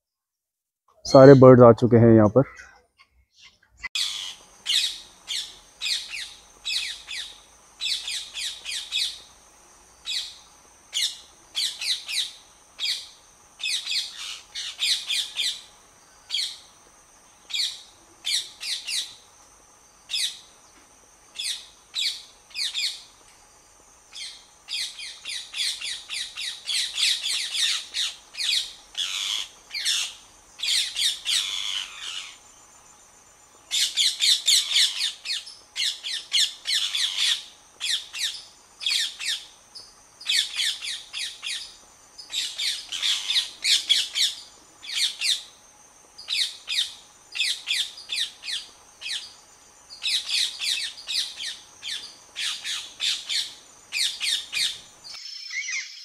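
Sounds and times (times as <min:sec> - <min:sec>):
parrots screeching: 0:04.0 - 0:06.2, 0:27.6 - 0:32.4, 0:42.9 - 0:44.3.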